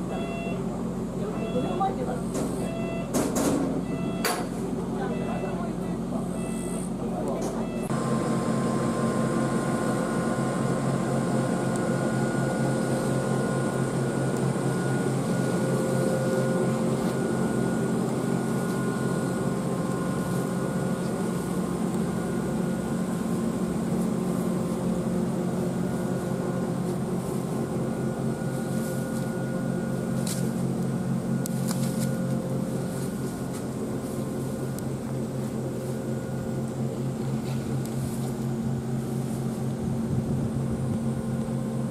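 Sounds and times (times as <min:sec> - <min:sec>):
locomotive machinery humming: 0:00.0 - 0:41.9.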